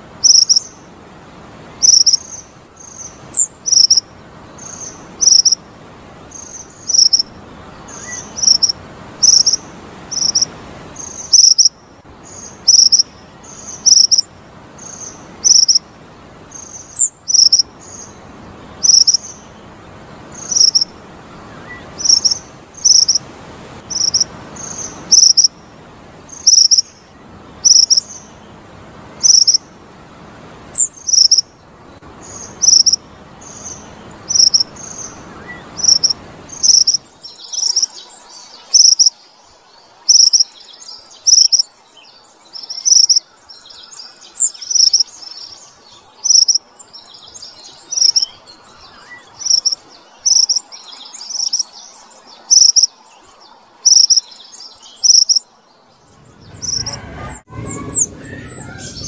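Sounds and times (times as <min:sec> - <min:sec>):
soft bird twittering: 0:00.0 - 0:00.8, 0:01.8 - 0:15.9, 0:16.5 - 0:23.2, 0:23.8 - 0:28.6, 0:29.2 - 0:29.7, 0:30.7 - 0:59.0
bird chirping: 0:00.2 - 0:00.8, 0:01.8 - 0:05.6, 0:06.2 - 0:15.8, 0:16.5 - 0:23.2, 0:23.9 - 0:25.7, 0:26.3 - 0:29.7, 0:30.7 - 0:59.0.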